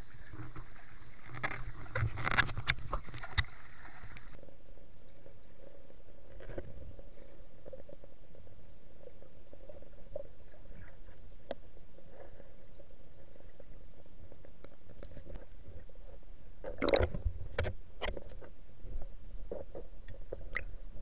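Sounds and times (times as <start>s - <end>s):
faint constant hum: 0.0s - 21.0s
small clicks and knocks: 1.2s - 4.3s, 16.9s - 18.5s.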